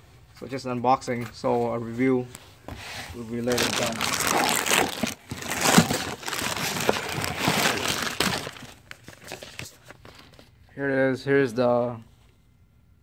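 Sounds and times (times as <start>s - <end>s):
plastic bag crinkling: 3.4s - 10.4s.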